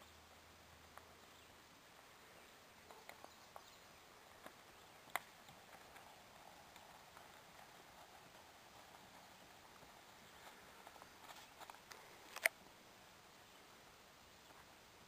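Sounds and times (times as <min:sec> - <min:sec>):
soft clicks: 0:09.7 - 0:12.6.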